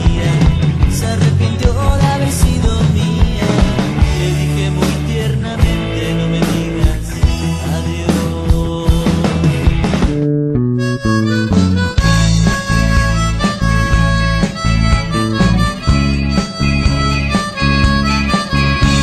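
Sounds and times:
full-band rock passage: 0:00.0 - 0:19.0
guitar and bass: 0:00.0 - 0:19.0
harmonica held notes: 0:10.6 - 0:19.0.

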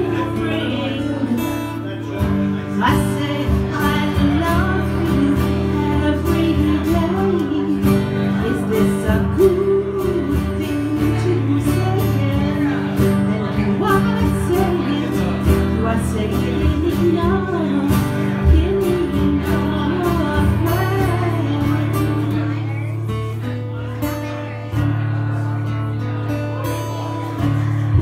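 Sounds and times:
woman singing: 0:00.0 - 0:01.8, 0:02.5 - 0:22.8
acoustic guitar strumming: 0:00.0 - 0:28.0.

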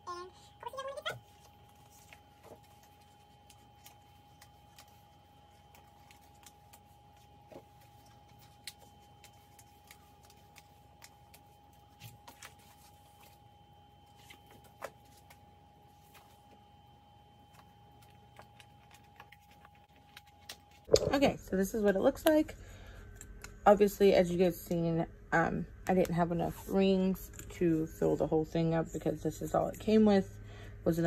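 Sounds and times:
paper handling: 0:01.0 - 0:16.6, 0:17.3 - 0:20.9.

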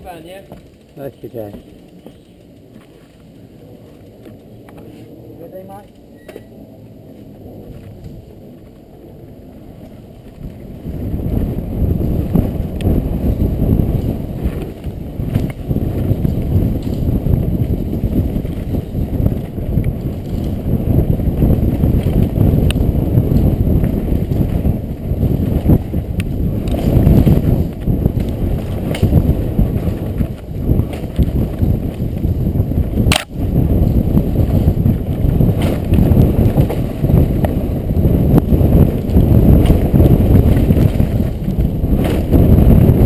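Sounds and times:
rumble of bike tyres: 0:00.0 - 0:43.0
wind buffeting microphone: 0:00.0 - 0:43.0
clicks and knocks from bike: 0:25.6 - 0:32.2.

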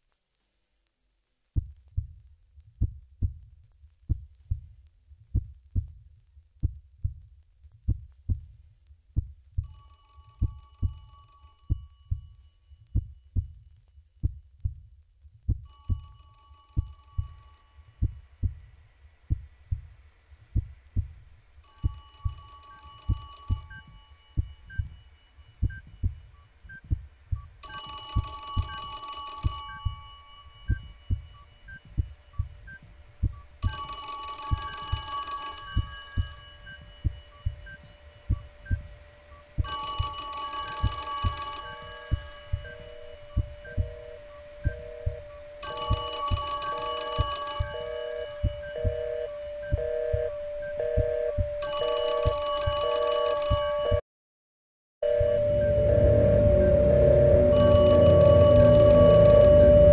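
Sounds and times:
low heartbeat-like thud: 0:02.8 - 0:03.5, 0:04.1 - 0:04.7, 0:05.3 - 0:06.0, 0:18.0 - 0:18.6, 0:19.3 - 0:19.9, 0:20.6 - 0:21.2, 0:25.6 - 0:27.5, 0:43.4 - 0:44.0, 0:44.6 - 0:45.2
high ringing tones: 0:09.6 - 0:13.5, 0:15.6 - 0:18.6, 0:21.6 - 0:26.9, 0:27.6 - 0:54.0, 0:55.0 - 0:59.9.

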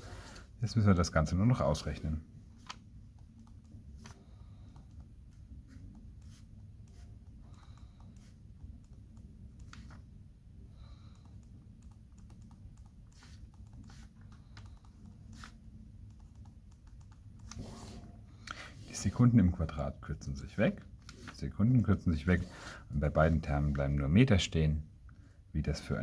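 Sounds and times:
low steady hum: 0:00.0 - 0:26.0
pen scratching on paper: 0:05.6 - 0:07.3, 0:12.9 - 0:14.3, 0:17.4 - 0:18.1.

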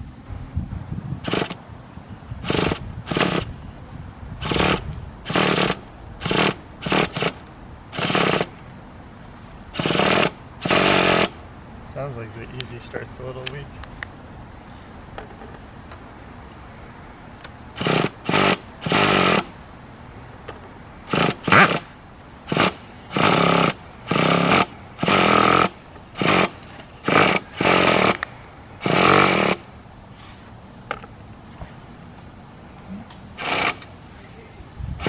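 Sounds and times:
electric starter spinning engine: 0:01.2 - 0:01.6, 0:02.4 - 0:03.5, 0:04.4 - 0:08.5, 0:09.7 - 0:11.4, 0:17.7 - 0:19.6, 0:21.0 - 0:29.7, 0:33.4 - 0:33.9.

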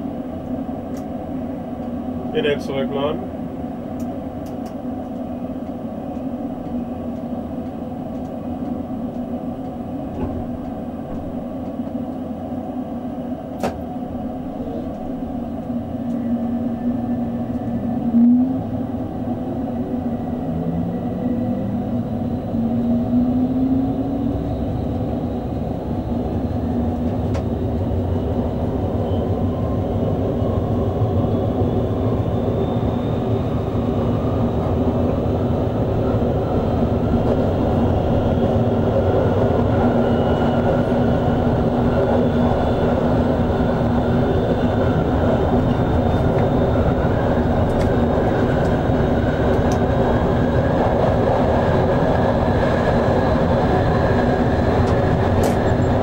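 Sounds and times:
wheels rumbling on track: 0:00.0 - 0:56.0
electric traction motor whine: 0:13.2 - 0:56.0.

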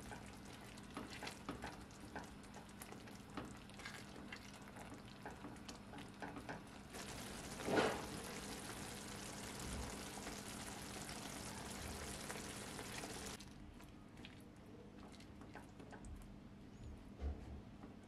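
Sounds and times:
sauce sizzling in a frying pan: 0:06.9 - 0:13.4.

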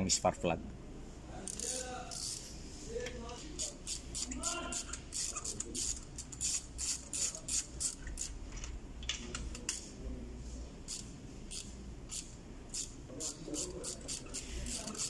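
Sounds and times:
ratchet wrench clicking: 0:01.4 - 0:02.5, 0:03.6 - 0:08.4, 0:10.9 - 0:15.0.

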